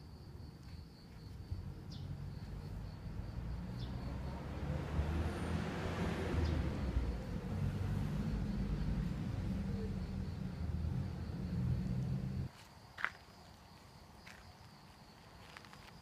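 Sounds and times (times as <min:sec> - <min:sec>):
high insect trill: 0:00.0 - 0:16.0
vehicle approaching rumble: 0:01.5 - 0:12.5.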